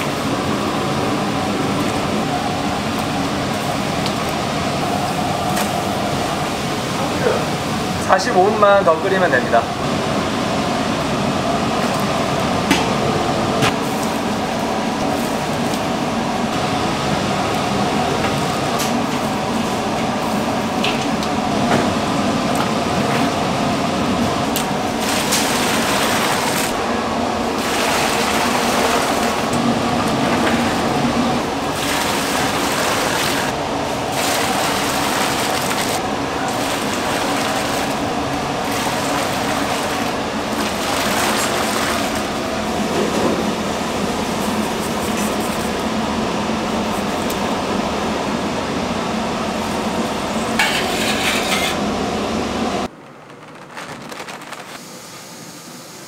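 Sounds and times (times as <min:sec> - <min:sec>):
water running and splashing: 0:24.6 - 0:26.8, 0:27.6 - 0:42.8.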